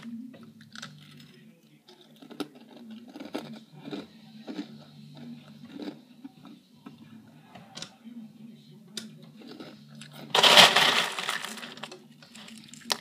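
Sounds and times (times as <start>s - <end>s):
person chewing crunchy cereal: 1.9s - 6.6s, 9.4s - 11.8s.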